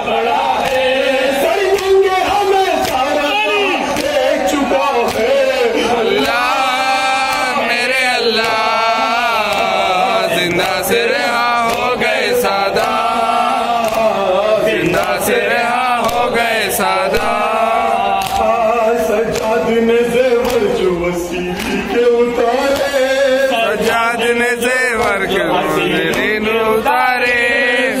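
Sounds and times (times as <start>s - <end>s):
crowd voices joining: 0.0s - 28.0s
men chanting a lament: 0.0s - 28.0s
hands slapping bare chests: 0.6s - 19.7s, 20.3s - 20.8s, 21.4s - 22.0s, 22.6s - 24.2s, 24.9s - 26.5s.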